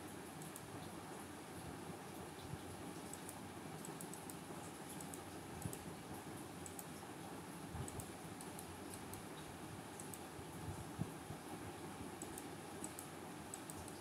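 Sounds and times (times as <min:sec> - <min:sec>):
low background hiss: 0:00.0 - 0:14.0
computer mouse clicks: 0:00.4 - 0:00.7, 0:03.0 - 0:05.9, 0:06.6 - 0:07.0, 0:07.8 - 0:09.4, 0:10.0 - 0:10.3, 0:12.2 - 0:14.0.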